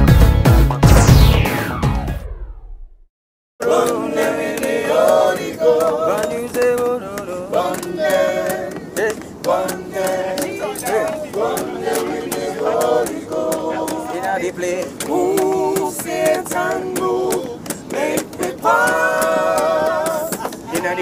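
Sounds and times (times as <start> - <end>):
music sting: 0.0 - 3.0
group singing gospel chorus: 3.6 - 21.0
sharp claps: 3.8 - 21.0.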